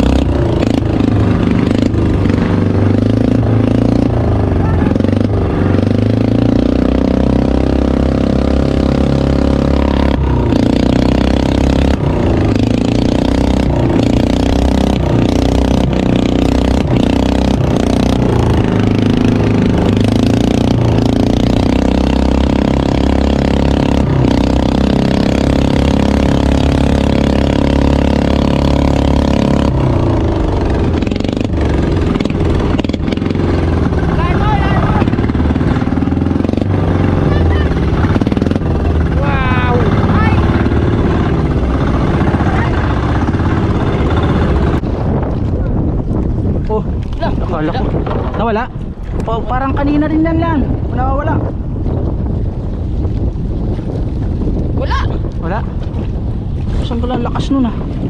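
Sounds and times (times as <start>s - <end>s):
small boat engine running: 0.0s - 45.5s.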